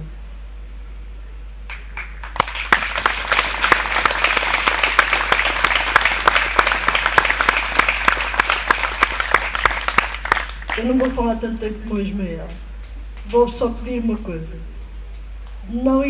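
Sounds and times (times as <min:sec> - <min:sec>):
audience applause: 0:01.7 - 0:11.4.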